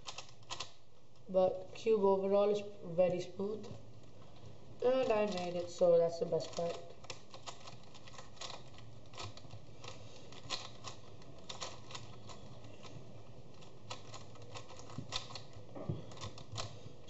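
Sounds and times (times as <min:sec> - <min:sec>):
plastic puzzle cube clicks: 0:00.0 - 0:00.8, 0:06.4 - 0:16.8.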